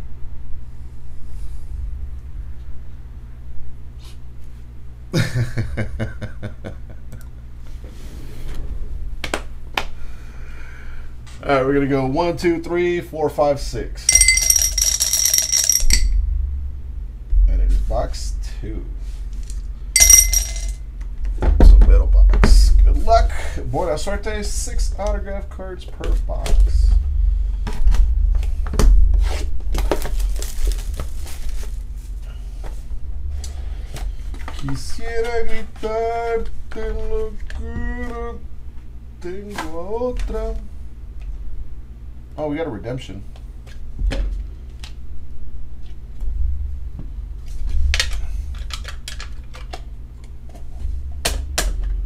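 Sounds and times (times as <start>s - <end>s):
low hum: 6.7s - 11.4s, 13.8s - 25.0s, 43.8s - 49.0s
plastic wrap crinkling: 29.7s - 32.1s.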